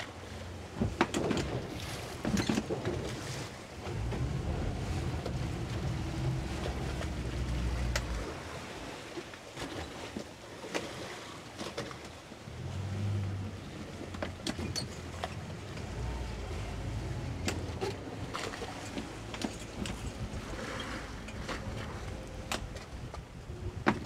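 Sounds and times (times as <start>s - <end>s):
choppy water: 0.0s - 24.0s
water slapping against hull: 0.0s - 24.0s
boat engine idling: 3.8s - 9.1s, 12.3s - 23.9s.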